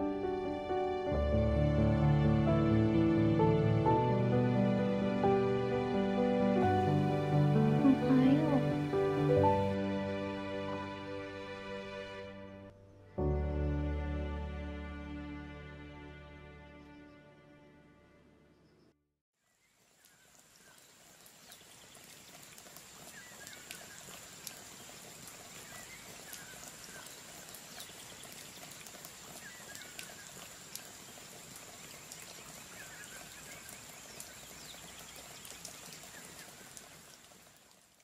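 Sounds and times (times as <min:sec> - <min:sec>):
rain falling: 0:00.0 - 0:11.5, 0:19.5 - 0:38.0
water dripping: 0:19.5 - 0:38.0.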